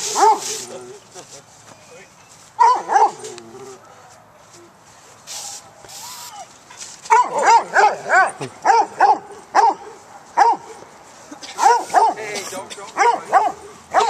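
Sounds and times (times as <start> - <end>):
small dog barking: 2.6 - 3.3, 7.1 - 10.8, 11.6 - 12.2, 13.0 - 14.0.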